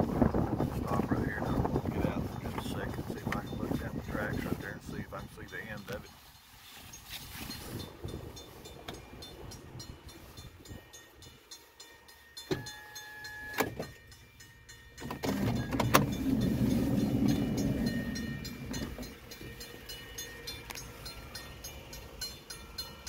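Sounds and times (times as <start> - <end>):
car electric window motor whine: 15.0 - 19.7.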